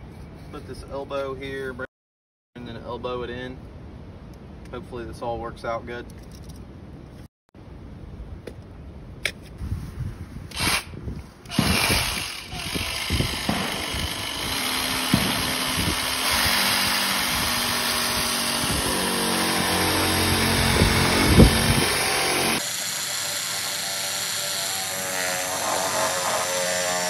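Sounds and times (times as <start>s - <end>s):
reciprocating saw cutting pipe: 11.5s - 27.0s.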